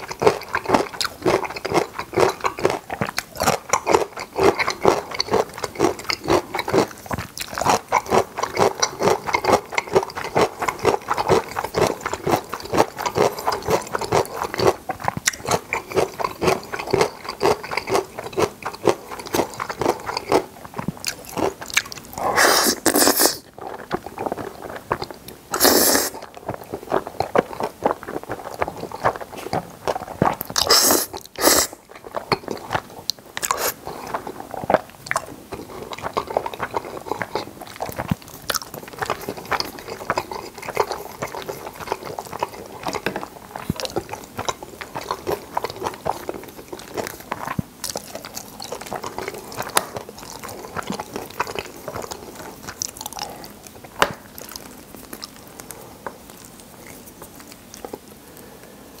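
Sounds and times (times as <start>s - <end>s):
wet chewing and mouth sounds: 0.0s - 59.0s
noodle slurps: 22.2s - 23.5s, 25.5s - 26.3s, 27.4s - 31.8s, 33.4s - 34.8s.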